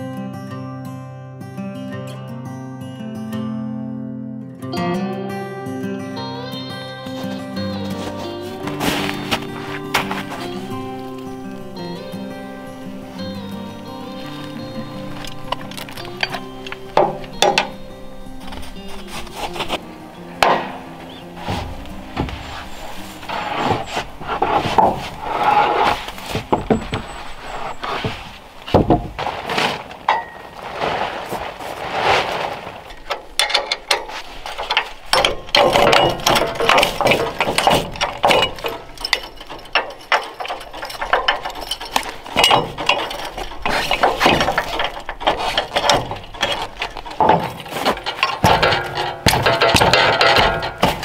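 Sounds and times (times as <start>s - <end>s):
metal clanking and ratcheting: 8.0s - 29.3s, 30.0s - 30.6s, 32.9s - 51.0s.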